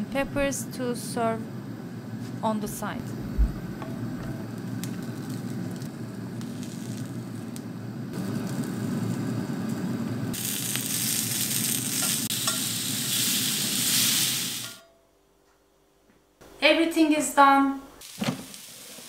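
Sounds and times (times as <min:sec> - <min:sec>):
vegetables sizzling on grill pan: 0:04.8 - 0:07.1, 0:08.2 - 0:14.8, 0:18.0 - 0:19.0.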